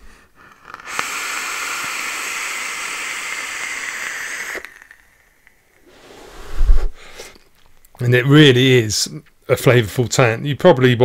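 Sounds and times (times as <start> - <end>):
air hiss through vape tank: 0.0 - 8.0.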